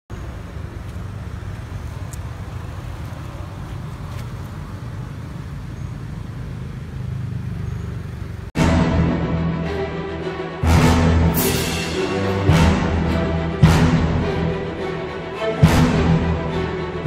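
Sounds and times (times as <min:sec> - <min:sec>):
low outdoor rumble: 0:00.1 - 0:08.6.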